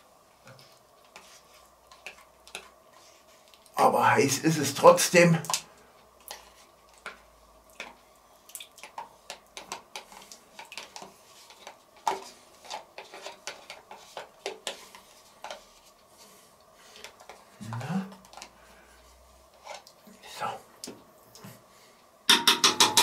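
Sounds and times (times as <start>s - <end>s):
spoon scraping plastic tub: 9.6s - 15.9s.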